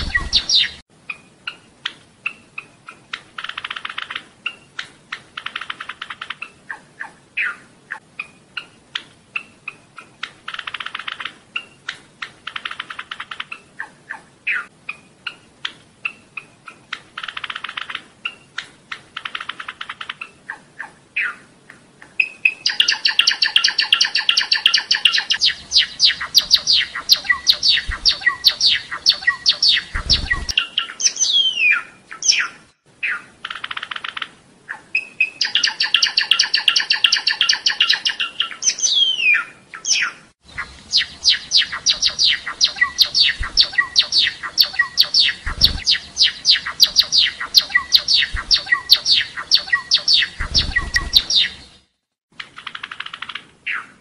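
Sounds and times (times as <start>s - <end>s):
sparrow singing: 0.0s - 8.8s, 22.2s - 51.9s
low thumps: 48.3s - 48.7s.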